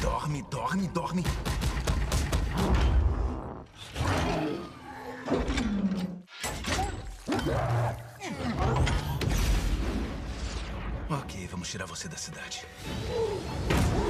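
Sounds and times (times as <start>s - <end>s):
orchestral film score: 7.4s - 14.0s.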